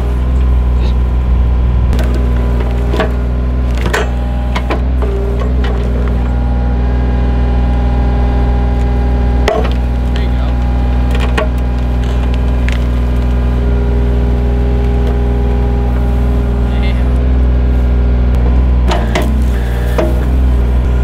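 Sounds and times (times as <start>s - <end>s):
diesel excavator engine running: 0.0s - 21.0s
wood cracking and snapping: 8.7s - 16.0s.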